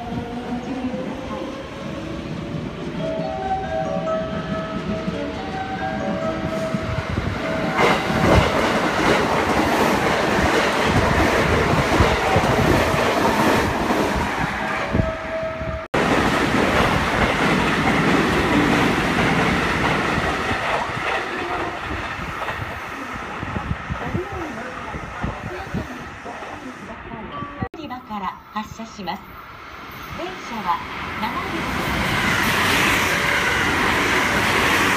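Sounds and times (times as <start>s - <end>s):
train running noise: 0.0s - 34.9s.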